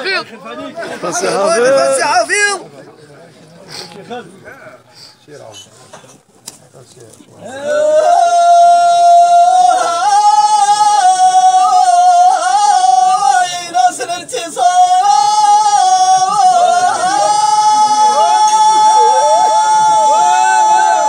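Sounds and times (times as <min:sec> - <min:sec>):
man singing unaccompanied chant: 0:07.4 - 0:21.0.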